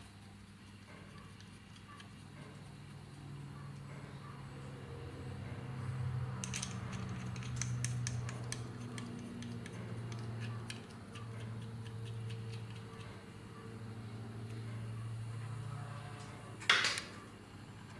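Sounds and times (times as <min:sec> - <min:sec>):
metal tool clicking: 0:06.4 - 0:12.8.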